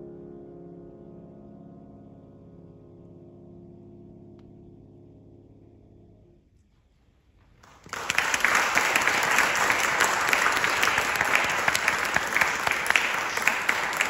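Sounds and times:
audience applauding: 7.6 - 14.0.

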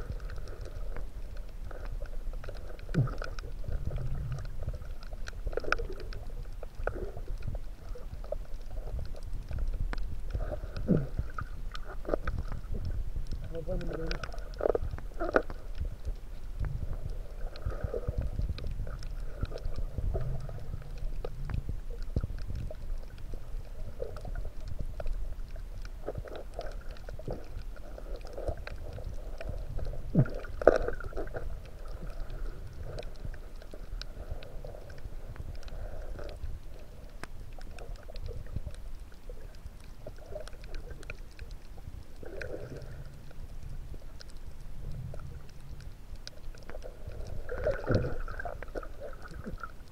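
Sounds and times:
underwater water rumble: 0.0 - 49.9.

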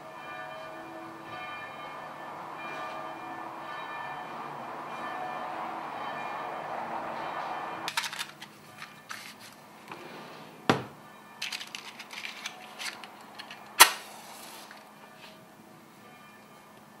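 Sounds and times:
light clicks and rattles: 11.4 - 13.7.

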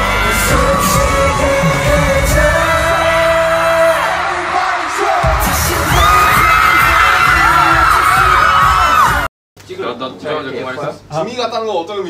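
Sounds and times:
live pop music with singing: 0.0 - 9.3.

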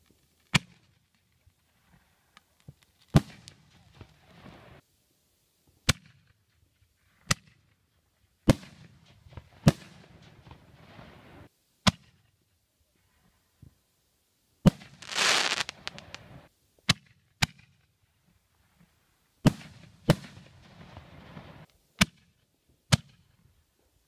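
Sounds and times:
fireworks crackles: 1.6 - 4.8, 9.0 - 11.5, 14.7 - 16.5, 19.5 - 21.8
fireworks bangs: 3.1 - 4.8, 14.7 - 16.5, 19.5 - 21.7.

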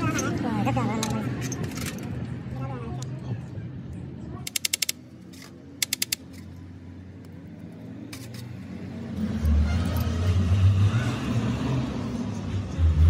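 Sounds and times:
rapid mechanical clicking: 4.4 - 6.4.

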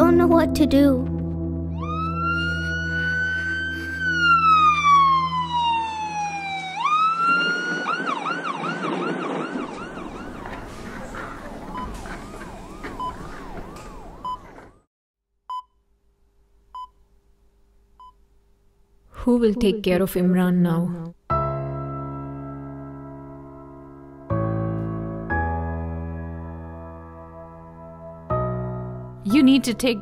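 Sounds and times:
siren wailing and yelping: 1.7 - 14.6.

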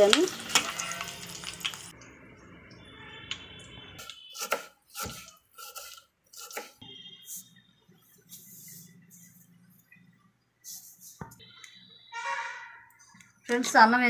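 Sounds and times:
spices sizzling in hot oil: 0.0 - 6.5
knife chopping onion on wooden board: 4.3 - 6.8.

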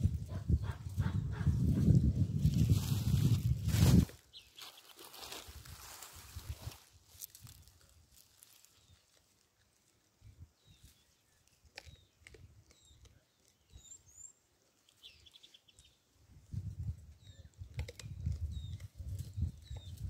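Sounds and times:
small birds chirping: 4.2 - 6.1, 8.2 - 9.3, 10.2 - 20.0.

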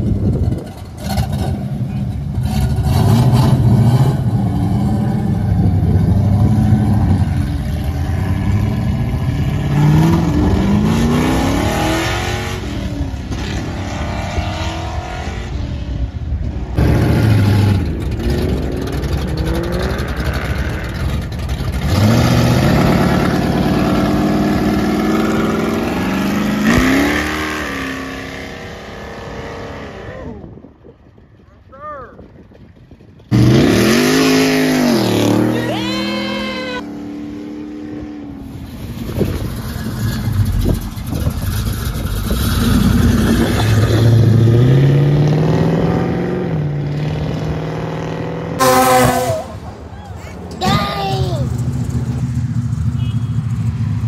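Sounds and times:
car exhaust rumble: 0.0 - 13.4, 15.6 - 27.7, 38.3 - 44.8.

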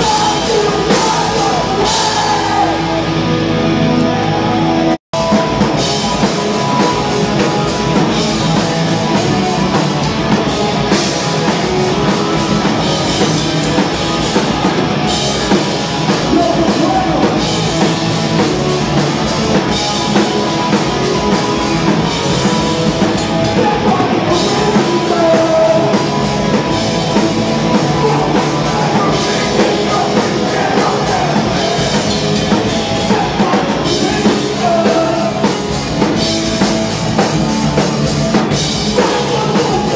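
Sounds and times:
vocals into a microphone: 0.0 - 3.1, 16.2 - 17.6, 23.4 - 35.9, 38.8 - 39.9
bass guitar: 0.0 - 39.9
distorted electric guitars: 0.0 - 39.9
pounding drum kit: 0.0 - 39.9.

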